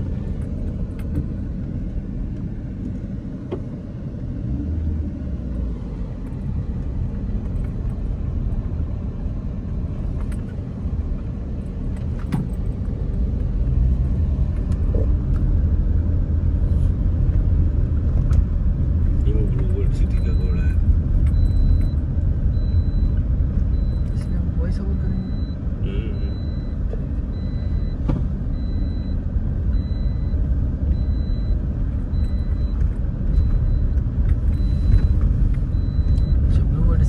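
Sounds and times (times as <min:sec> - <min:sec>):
engine and tyres rumbling: 0:00.0 - 0:37.0.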